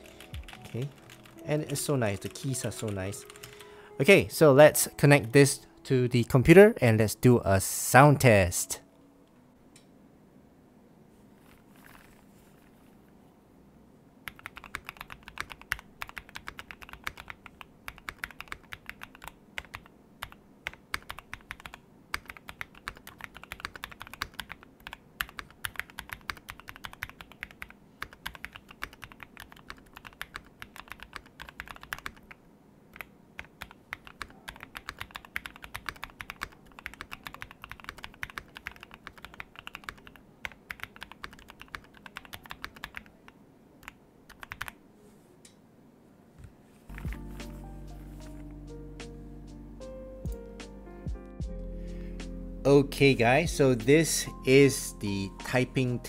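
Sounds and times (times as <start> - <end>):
mechanical keyboard typing: 0.0 - 3.7, 14.2 - 43.2, 43.8 - 44.8, 46.9 - 47.3.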